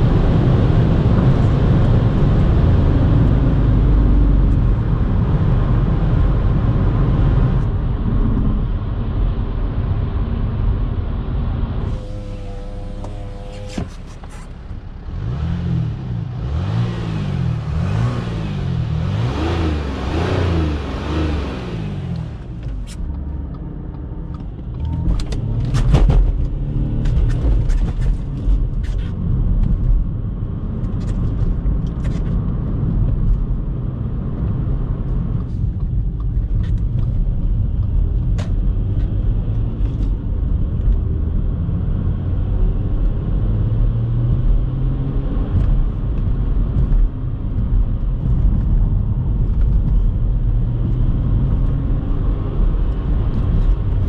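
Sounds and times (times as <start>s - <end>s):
diesel car engine: 0.0s - 54.0s
engine and tyre rumble: 0.0s - 54.0s
wind and road noise: 0.0s - 54.0s.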